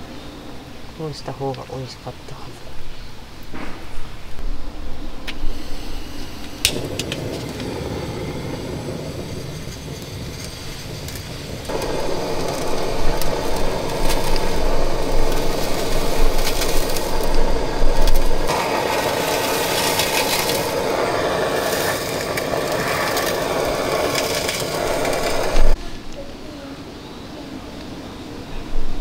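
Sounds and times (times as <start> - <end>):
kitchen torch hissing: 5.2 - 25.8
torch igniter clicks: 5.2 - 25.8.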